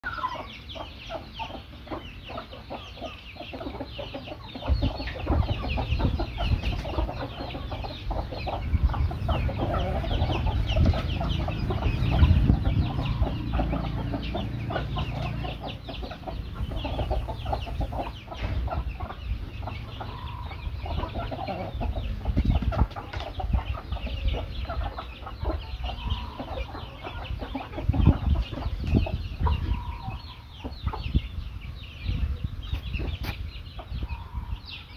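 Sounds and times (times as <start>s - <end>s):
chickens clucking: 0.0s - 34.9s.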